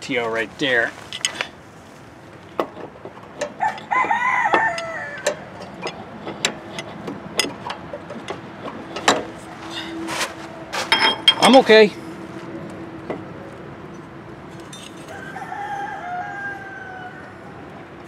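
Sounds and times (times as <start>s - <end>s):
metal clutch clicks and knocks: 2.6s - 9.4s
rooster crowing: 3.5s - 5.6s, 14.9s - 17.8s.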